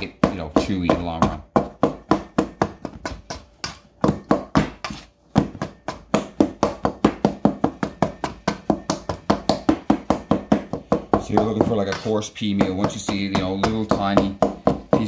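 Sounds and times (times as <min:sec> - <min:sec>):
pastry blender knocking in bowl: 0:04.0 - 0:15.0.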